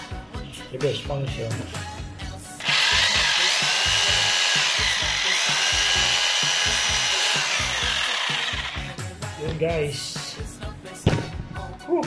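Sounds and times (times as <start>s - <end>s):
hammer drill motor whining: 2.6s - 9.0s.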